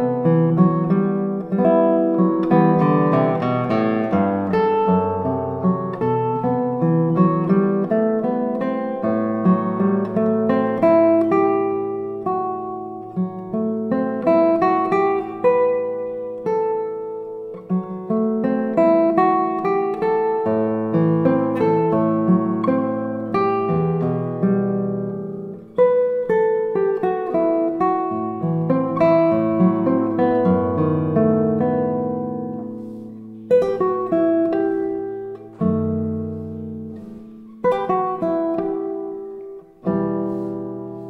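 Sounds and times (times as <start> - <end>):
fingerstyle classical guitar: 0.0 - 41.0.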